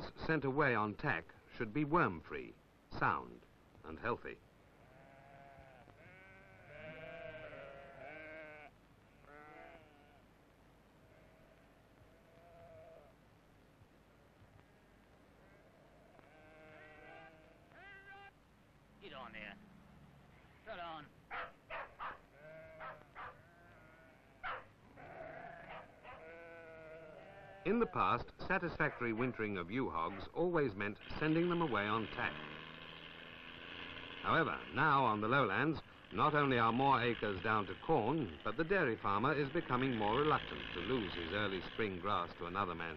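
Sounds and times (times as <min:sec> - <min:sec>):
lambs bleating faintly: 0:04.7 - 0:10.3, 0:10.9 - 0:13.2, 0:14.6 - 0:18.3, 0:22.2 - 0:28.2.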